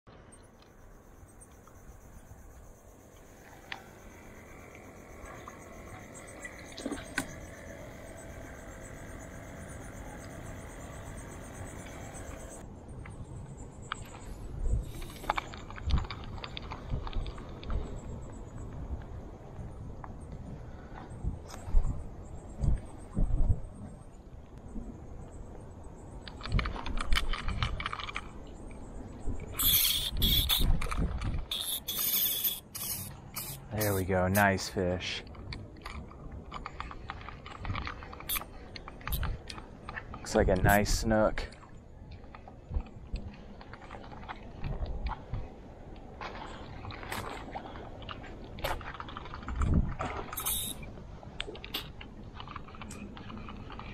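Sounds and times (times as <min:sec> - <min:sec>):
insects trilling: 0:00.2 - 0:20.0, 0:20.6 - 0:35.3, 0:36.6 - 0:42.0, 0:50.3 - 0:50.9
fishing reel clicking: 0:29.6 - 0:30.7, 0:31.5 - 0:34.0, 0:50.4 - 0:50.8
fishing reel hissing buzz: 0:29.6 - 0:30.7, 0:31.5 - 0:34.0, 0:50.4 - 0:50.8.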